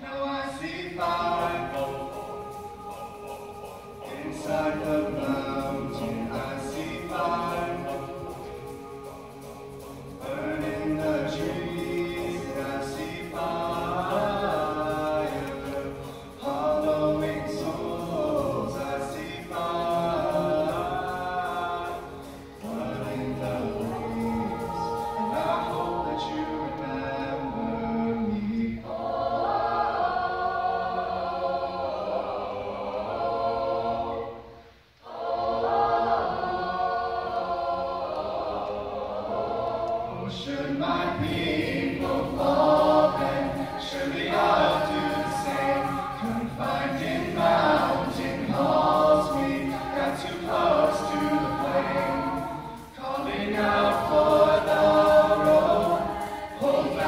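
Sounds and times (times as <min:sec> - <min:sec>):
choir singing: 0:00.0 - 0:57.0
steady beat: 0:00.6 - 0:26.8, 0:40.6 - 0:57.0.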